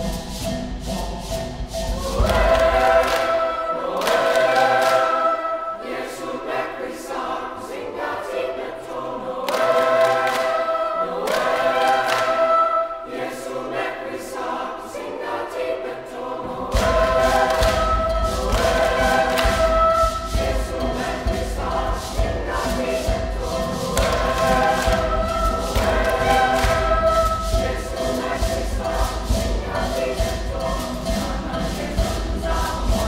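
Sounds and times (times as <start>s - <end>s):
deep low-pitched musical accompaniment: 0.0s - 3.7s
boys' choir singing: 0.0s - 33.0s.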